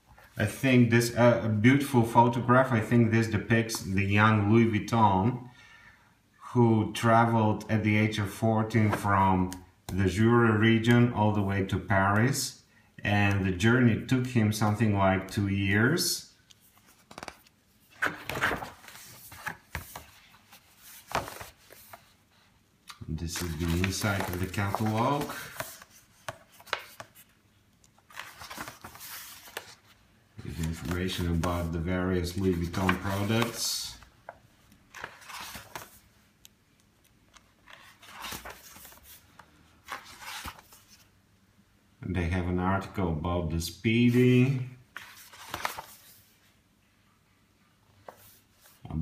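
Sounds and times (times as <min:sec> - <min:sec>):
paper pages rustling: 0:16.4 - 0:36.2, 0:37.3 - 0:41.1, 0:44.2 - 0:46.5, 0:47.9 - 0:48.9.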